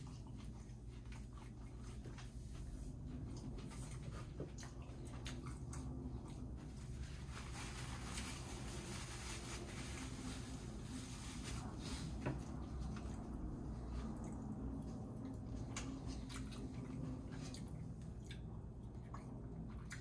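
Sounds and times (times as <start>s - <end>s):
person chewing food: 0.0s - 7.0s, 12.8s - 20.0s
low hum: 0.0s - 20.0s.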